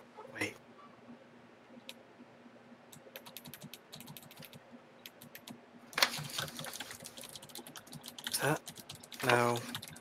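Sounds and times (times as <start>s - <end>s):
faint computer keyboard typing: 2.9s - 10.0s.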